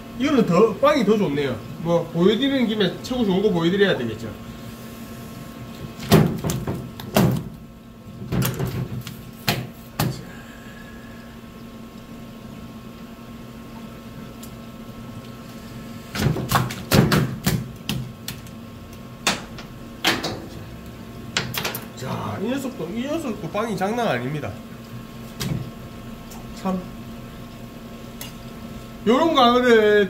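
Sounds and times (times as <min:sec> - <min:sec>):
fish slapping on cutting board: 0:16.2 - 0:18.5.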